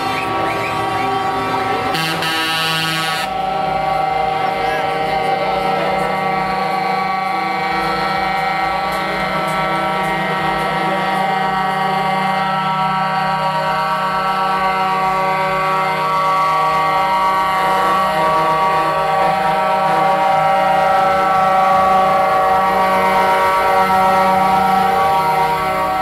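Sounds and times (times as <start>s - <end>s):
lorry air horns: 0.0s - 26.0s.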